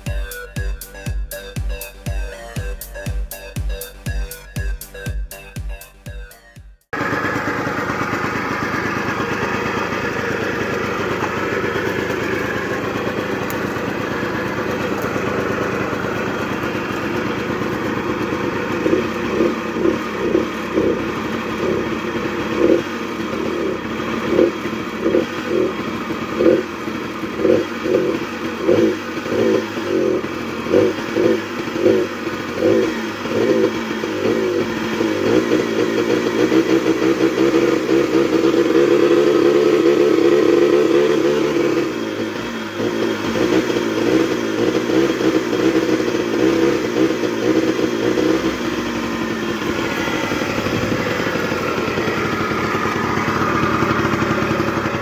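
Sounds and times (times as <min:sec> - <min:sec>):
scooter engine revving: 0:00.0 - 0:55.0.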